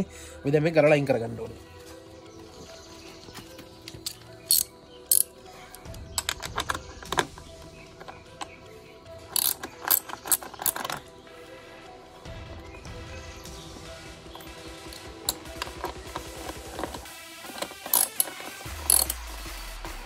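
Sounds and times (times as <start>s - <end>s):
ratchet clicking: 4.0s - 7.2s, 9.3s - 11.0s, 14.4s - 19.2s.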